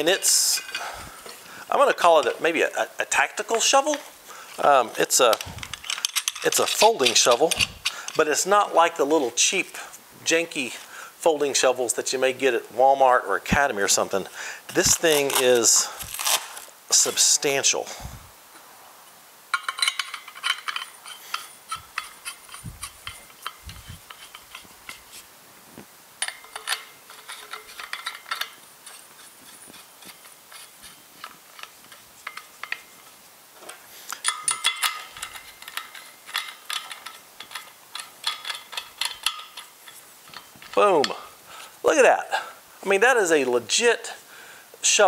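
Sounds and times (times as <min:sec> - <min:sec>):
metal threads clicking and rasping: 0:04.5 - 0:08.3, 0:19.5 - 0:25.2, 0:26.2 - 0:33.2, 0:34.1 - 0:41.3.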